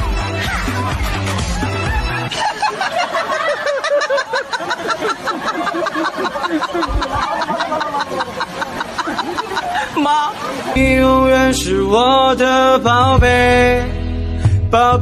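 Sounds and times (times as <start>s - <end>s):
people laughing: 0.0s - 10.8s.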